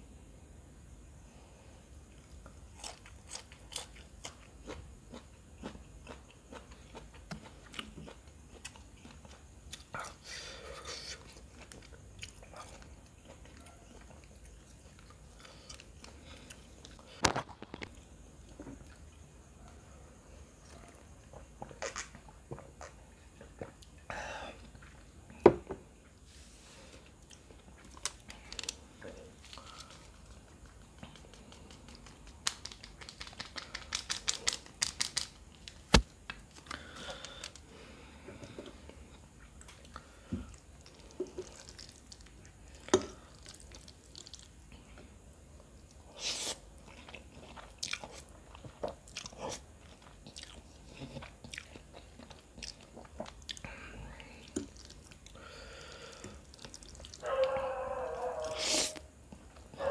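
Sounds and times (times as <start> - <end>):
chewing and biting: 2.8 - 9.9, 46.8 - 53.7
foil packet crinkling: 31.6 - 37.6.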